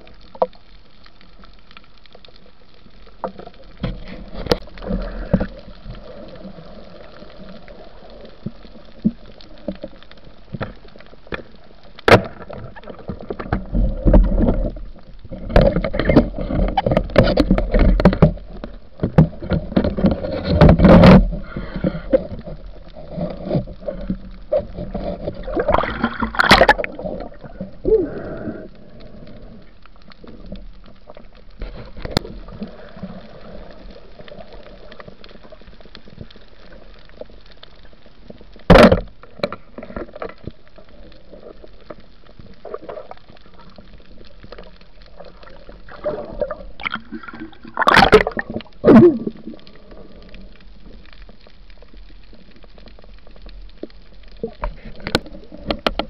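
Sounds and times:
underwater water wash: 0:00.0 - 0:56.0
gurgling: 0:25.4 - 0:28.7, 0:45.9 - 0:49.6.

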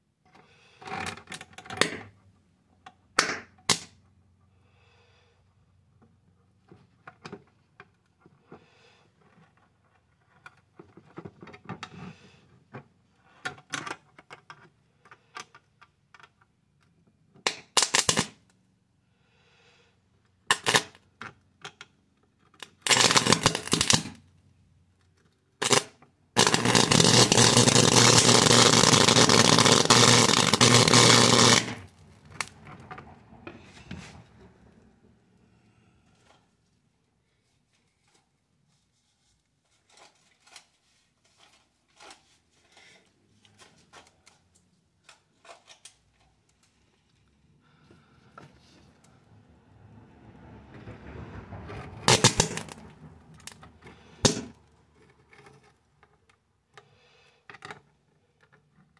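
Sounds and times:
electric sparks snapping: 0:17.5 - 0:18.3, 0:22.9 - 0:24.2, 0:25.6 - 0:32.5, 0:52.1 - 0:52.8
electric arc buzzing: 0:22.9 - 0:24.2, 0:25.6 - 0:31.9, 0:52.1 - 0:52.7.

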